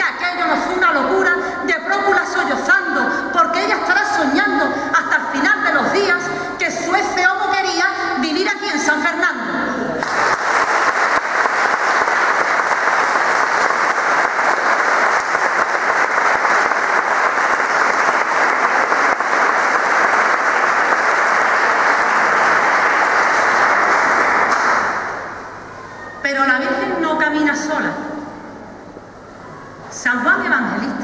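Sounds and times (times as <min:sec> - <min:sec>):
audience applauding: 0:10.0 - 0:25.5.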